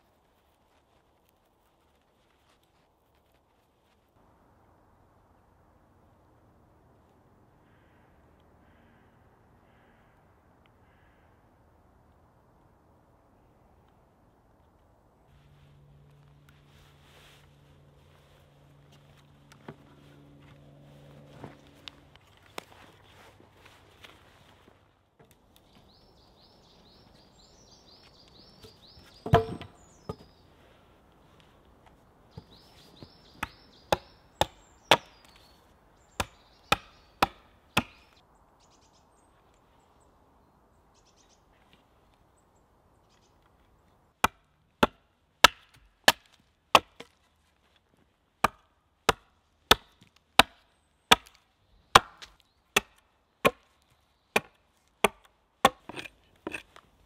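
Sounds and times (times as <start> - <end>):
hatchet chopping wood: 29.2 - 30.2, 32.4 - 35.4, 36.2 - 38.2, 44.2 - 47.2, 48.4 - 56.7.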